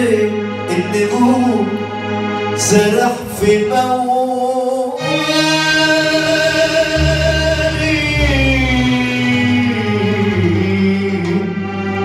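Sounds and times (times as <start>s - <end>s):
band accompaniment: 0.0s - 12.0s
deep bass line: 0.0s - 12.0s
man singing a long note: 2.6s - 11.6s.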